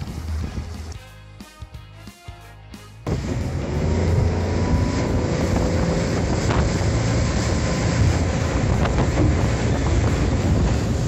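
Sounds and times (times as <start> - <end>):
wind: 3.0 - 11.0
outboard motor running: 3.1 - 11.0
water rushing: 3.1 - 11.0.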